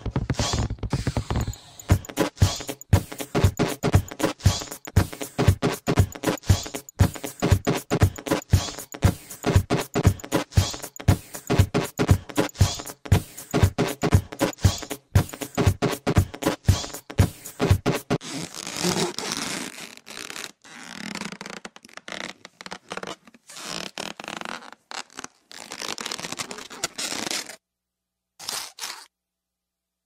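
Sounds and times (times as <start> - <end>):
raspy scratchy noise: 0.0 - 18.2.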